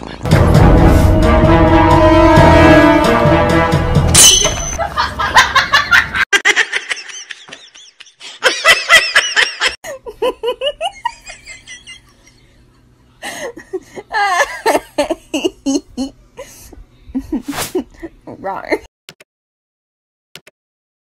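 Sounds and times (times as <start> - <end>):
person laughing hard: 4.8 - 12.3, 13.2 - 16.1.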